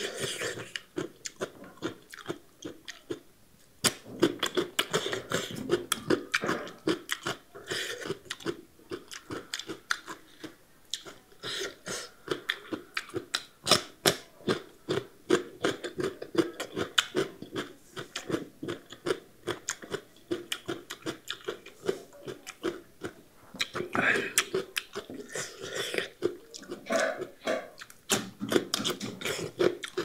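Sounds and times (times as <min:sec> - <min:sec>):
crunchy chewing: 0:00.0 - 0:30.0
wet mouth sounds: 0:03.8 - 0:30.0.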